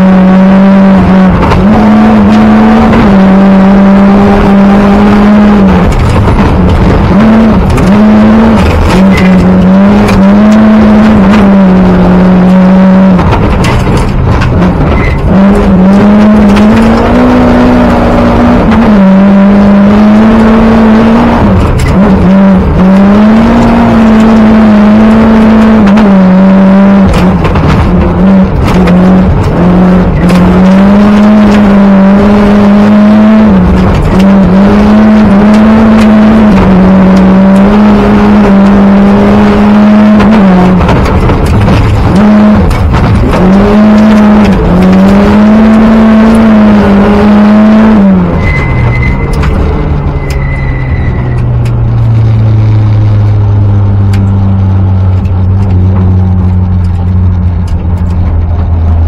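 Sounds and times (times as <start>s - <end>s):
gravel and tyre noise: 0.0s - 59.0s
rally car engine at full throttle: 0.0s - 59.0s.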